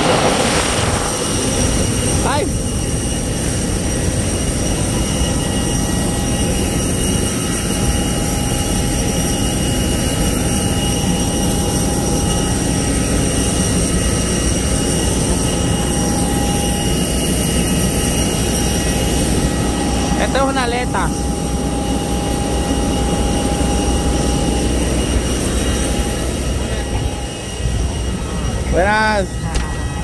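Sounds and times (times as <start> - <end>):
jet turbine rumble and whine: 0.0 - 30.0.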